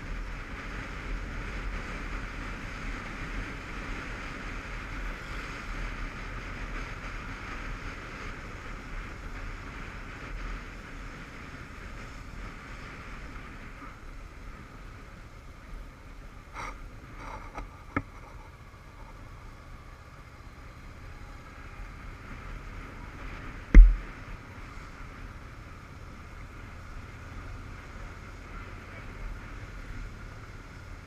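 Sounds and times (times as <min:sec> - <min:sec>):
motorcycle engine rumble: 0:00.0 - 0:31.0
wind rush over microphone: 0:22.0 - 0:25.2
brief knocks: 0:23.7 - 0:24.0.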